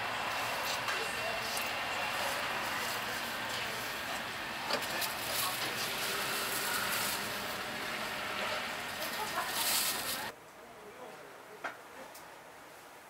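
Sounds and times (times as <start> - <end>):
distant traffic: 0.0 - 10.3.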